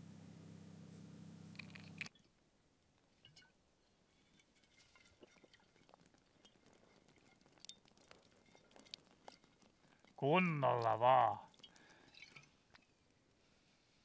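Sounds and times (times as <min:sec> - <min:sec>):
faint small clicks and ticks: 0:05.3 - 0:10.2, 0:11.4 - 0:13.2.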